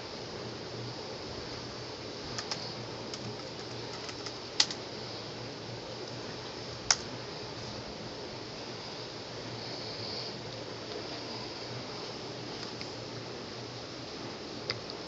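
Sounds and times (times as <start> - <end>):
steady hiss: 0.0 - 15.0
laptop keys clicking: 2.3 - 4.8.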